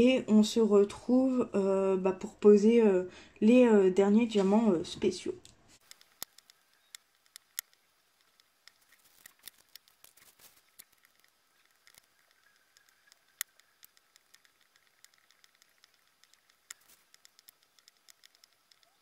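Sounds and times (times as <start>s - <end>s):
light clicks and taps of plastic: 5.4s - 19.0s.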